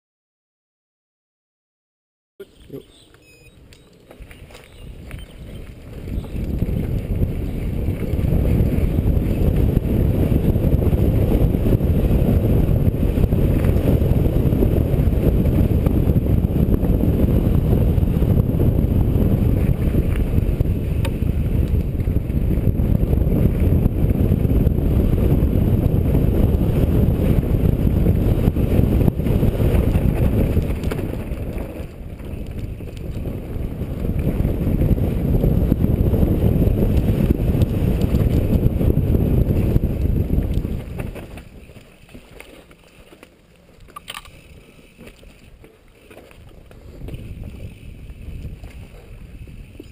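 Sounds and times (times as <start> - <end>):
wind rumble on microphone: 3.2 - 49.9
tyre and bike rattle: 25.2 - 49.9.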